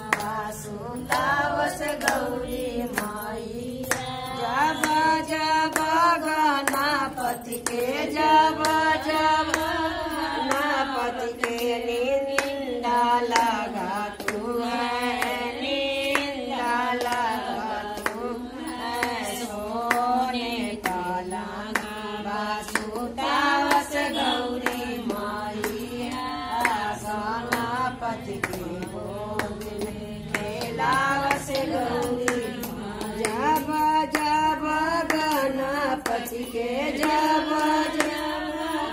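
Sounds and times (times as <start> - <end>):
hand-clapping: 0.0 - 38.9
women singing devotional song: 0.0 - 38.9.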